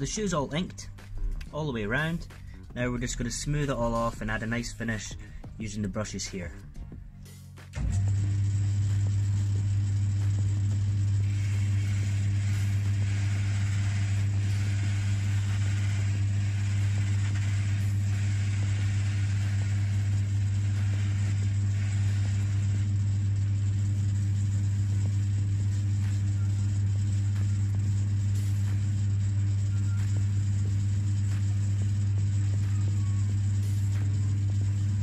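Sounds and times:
electric motor humming: 7.7 - 35.0.

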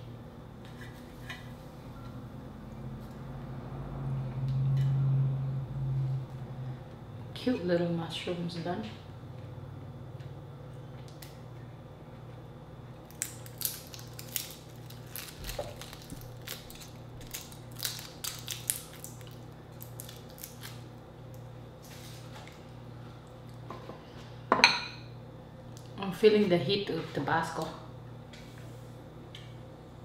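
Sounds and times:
steady low hum: 0.0 - 30.0
shrimp shell cracking: 13.1 - 20.8.

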